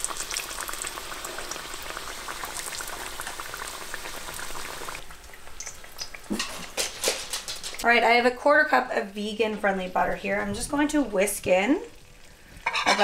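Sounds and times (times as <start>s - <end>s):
food frying in hot oil: 0.0s - 8.0s, 10.6s - 13.0s.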